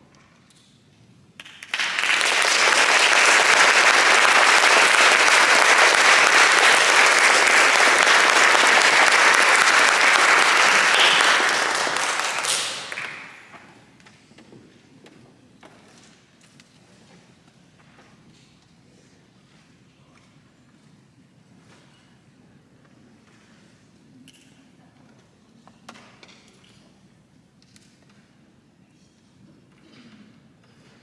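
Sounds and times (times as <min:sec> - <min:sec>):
audience applauding: 0:01.4 - 0:13.6.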